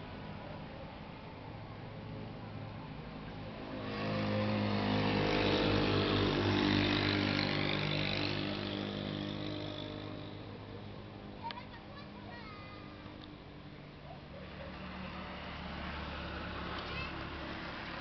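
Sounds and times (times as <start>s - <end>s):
vehicle engine passing by: 1.9s - 11.3s, 14.3s - 18.0s.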